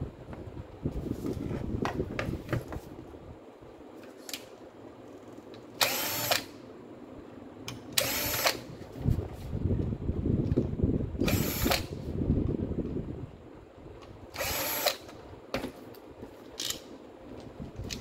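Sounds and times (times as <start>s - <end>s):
cordless drill whirring: 5.8s - 6.6s, 8.0s - 8.7s, 11.2s - 11.9s, 14.3s - 15.1s.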